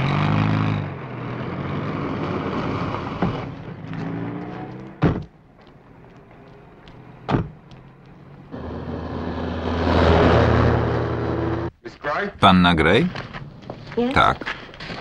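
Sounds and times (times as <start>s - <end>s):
car engine: 0.0s - 11.8s
sharp thump: 5.0s - 5.3s, 7.3s - 7.6s.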